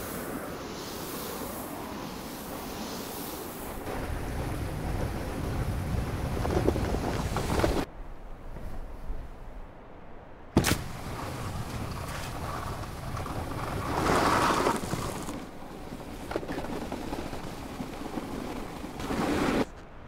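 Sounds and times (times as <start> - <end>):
skis sliding over snow: 0.0 - 7.9, 10.8 - 19.8
ski jump landing thump: 10.6 - 12.8.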